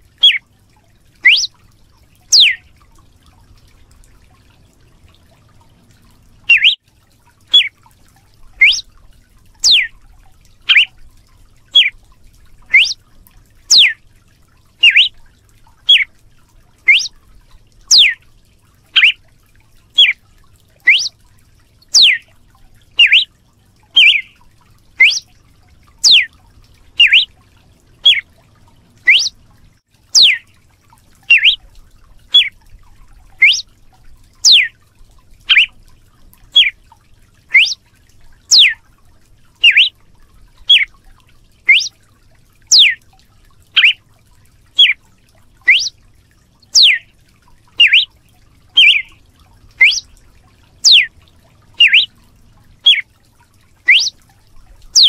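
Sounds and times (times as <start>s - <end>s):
bird whip-like call: 1.2s - 1.5s, 2.3s - 2.6s, 6.5s - 6.8s, 7.5s - 7.7s, 8.6s - 8.8s, 9.6s - 9.9s, 10.7s - 10.9s, 12.7s - 13.0s, 13.7s - 14.0s, 14.8s - 15.1s, 15.9s - 16.1s, 16.9s - 17.1s, 17.9s - 18.2s, 19.0s - 19.2s, 20.0s - 20.2s, 20.9s - 21.1s, 22.0s - 22.2s, 23.0s - 23.3s, 24.0s - 24.3s, 25.0s - 25.2s, 26.0s - 26.3s, 27.0s - 27.3s, 28.0s - 28.2s, 29.1s - 29.3s, 30.2s - 30.4s, 31.3s - 31.6s, 32.3s - 32.5s, 33.4s - 33.6s, 34.4s - 34.7s, 35.5s - 35.7s, 37.5s - 37.8s, 38.5s - 38.8s, 39.6s - 39.9s, 40.7s - 40.9s, 41.7s - 41.9s, 42.7s - 43.0s, 43.8s - 44.0s, 45.7s - 45.9s, 46.8s - 47.0s, 47.8s - 48.1s, 48.8s - 49.1s, 49.8s - 50.0s, 50.8s - 51.1s, 51.8s - 52.1s, 53.9s - 54.2s.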